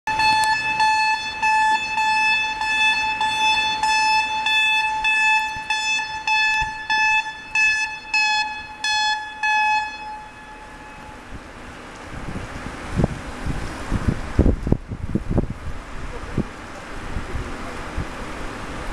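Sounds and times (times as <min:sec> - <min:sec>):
warning horn short toots: 0:03.8 - 0:11.3
wind noise: 0:10.6 - 0:18.9.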